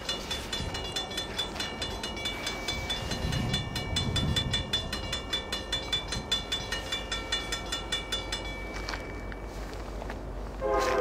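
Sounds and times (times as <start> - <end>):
railroad crossing bell ringing: 0.0 - 11.0.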